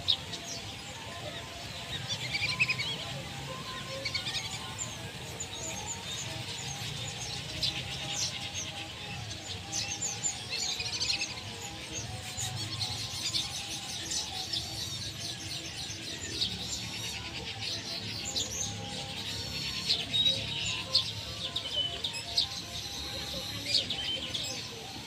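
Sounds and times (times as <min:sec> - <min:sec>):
background music: 0:00.0 - 0:25.0
birds chirping: 0:00.0 - 0:25.0.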